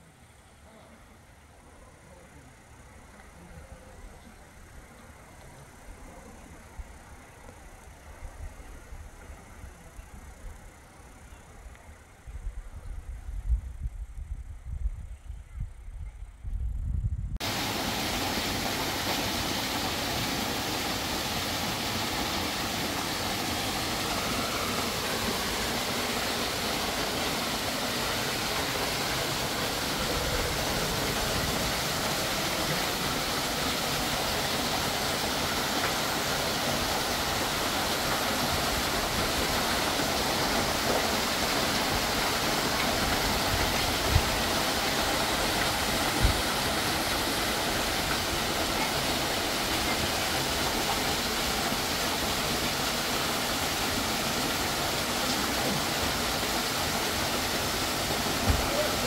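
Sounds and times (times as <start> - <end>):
waterfall splashing over rocks: 17.4 - 59.0.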